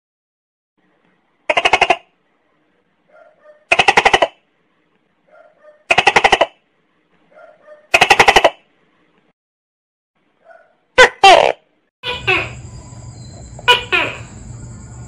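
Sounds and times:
gecko calling: 0:12.0 - 0:15.0.

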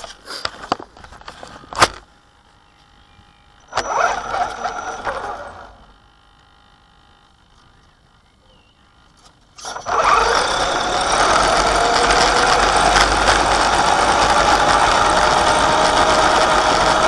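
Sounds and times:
faint steady whine: 0:00.0 - 0:10.1
electric motor and gearbox whirring: 0:00.0 - 0:17.0.

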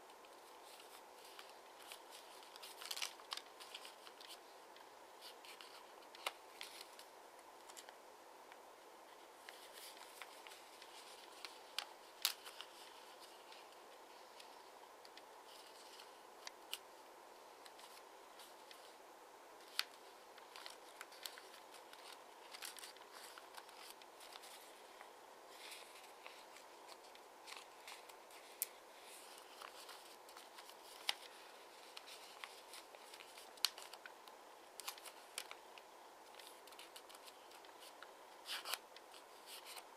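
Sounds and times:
faint steady hiss: 0:00.0 - 0:39.9
paper rustling and crackling: 0:00.2 - 0:08.0, 0:09.1 - 0:16.8, 0:17.5 - 0:19.0, 0:19.6 - 0:39.9.

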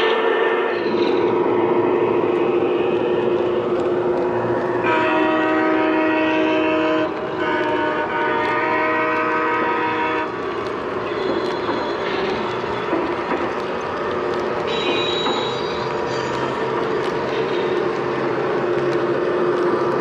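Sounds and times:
model train rumbling on track: 0:00.0 - 0:20.0
model train electronic horn: 0:04.8 - 0:10.3.

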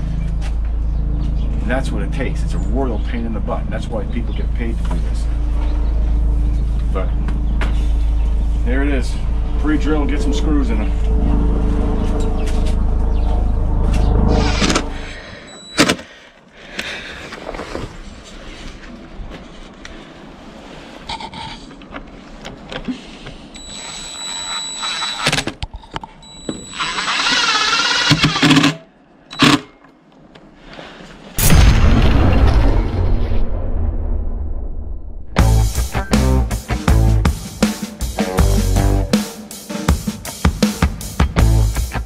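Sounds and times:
music: 0:07.3 - 0:15.0, 0:35.4 - 0:42.0
drill whining: 0:23.6 - 0:25.3, 0:26.4 - 0:29.7.

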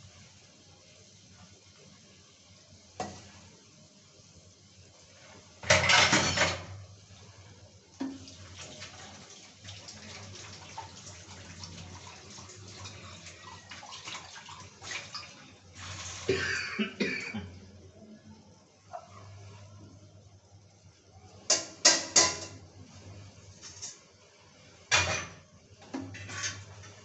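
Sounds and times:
curry simmering in pan: 0:06.6 - 0:16.3.

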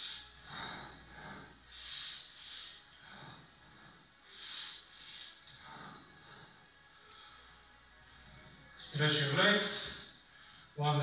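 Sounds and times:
man breathing into microphone: 0:00.0 - 0:07.7.

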